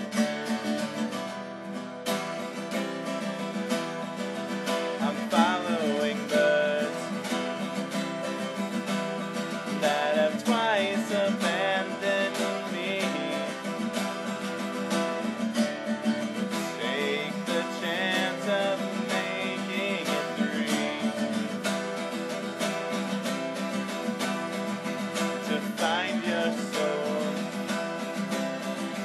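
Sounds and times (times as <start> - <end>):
acoustic guitar strumming: 0.0 - 29.0
person singing wavering phrases: 5.0 - 7.2, 9.7 - 13.8, 16.5 - 21.6, 25.5 - 27.6.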